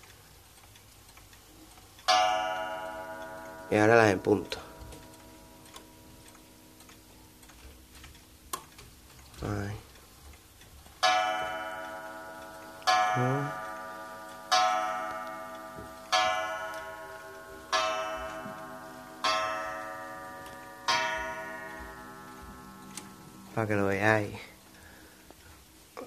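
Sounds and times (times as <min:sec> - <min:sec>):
pendulum ticking: 0:00.0 - 0:26.0
wall clock striking gong: 0:02.1 - 0:07.2, 0:11.0 - 0:24.7.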